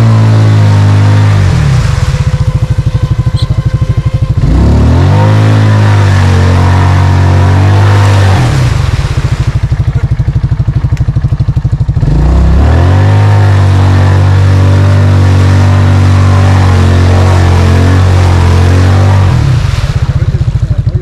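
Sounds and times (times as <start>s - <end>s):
atv engine revving: 0.0s - 21.0s.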